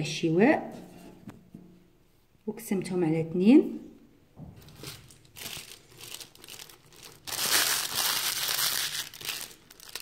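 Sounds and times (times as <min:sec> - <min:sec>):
plastic bag crinkling: 0:04.6 - 0:10.0.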